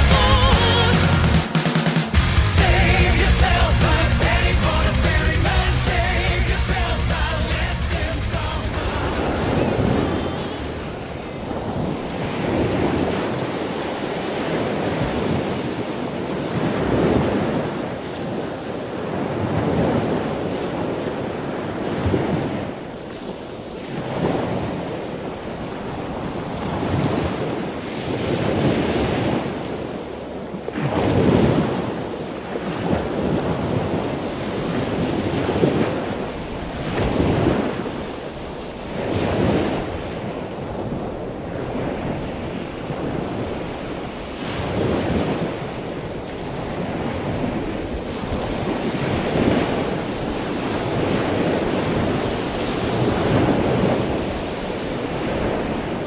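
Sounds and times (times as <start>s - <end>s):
loud rushing noise: 0.0s - 11.3s.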